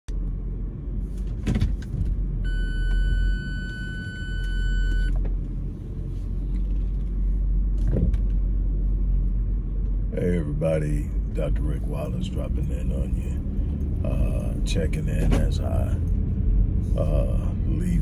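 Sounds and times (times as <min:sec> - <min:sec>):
steady electronic beep: 0:02.4 - 0:05.2.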